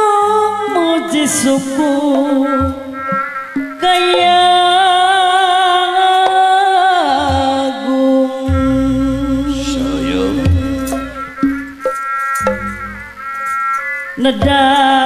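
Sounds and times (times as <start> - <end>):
woman singing with vibrato: 0.0 - 3.1, 3.8 - 11.4, 14.2 - 15.0
group music: 8.5 - 13.6.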